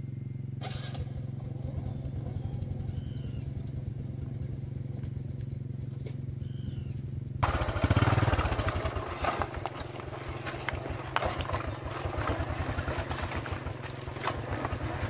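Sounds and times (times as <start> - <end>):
small motorbike engine revving: 0.6 - 15.0
bike rattling over dirt track: 7.4 - 15.0.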